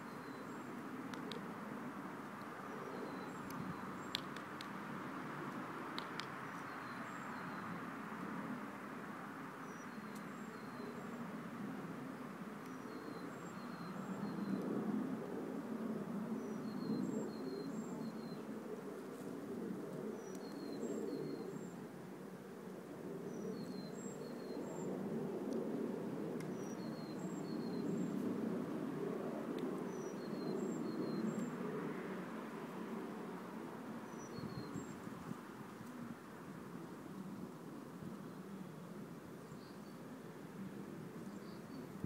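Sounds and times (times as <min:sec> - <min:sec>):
songbird chirping: 0:02.4 - 0:04.6, 0:06.0 - 0:07.8.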